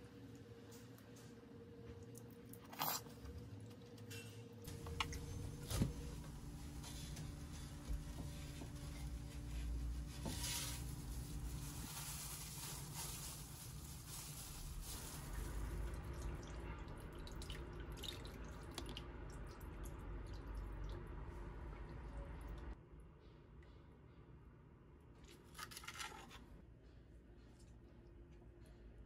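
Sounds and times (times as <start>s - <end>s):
water sloshing and dripping in pot: 15.0s - 22.8s.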